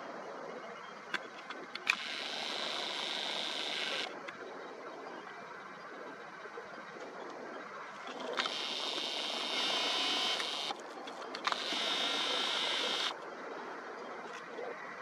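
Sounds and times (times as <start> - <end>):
faint outdoor background: 0.0 - 15.0
camera lens motor whirring: 1.8 - 4.1, 8.3 - 10.8, 11.4 - 13.2
small lens clicks: 8.3 - 13.2.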